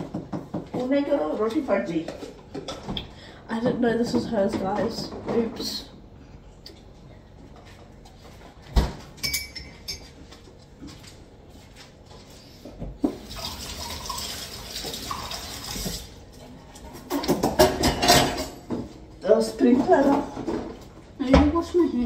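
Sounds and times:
crockery clinking: 9.2 - 10.2
water running: 13.0 - 16.8.

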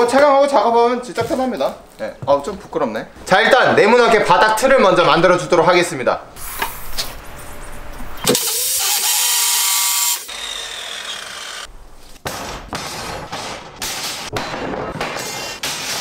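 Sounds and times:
cut-off saw grinding steel: 8.3 - 11.7.

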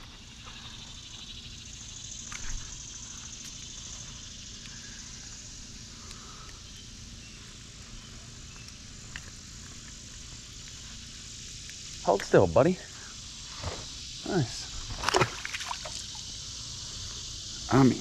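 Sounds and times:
high hiss: 0.0 - 18.0.

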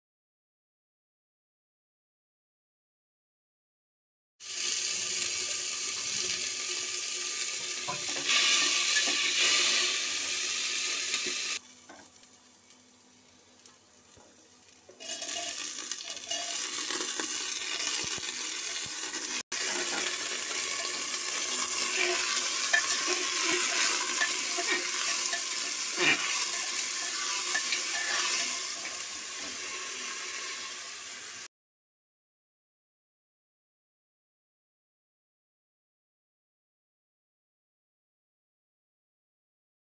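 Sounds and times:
hot oil sizzling in a pot: 4.4 - 31.5
spatula stirring: 15.0 - 18.8, 19.6 - 29.0.

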